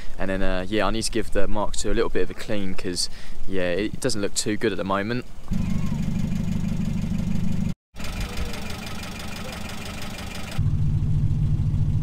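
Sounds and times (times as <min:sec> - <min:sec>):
car engine rumbling: 0:05.3 - 0:12.0.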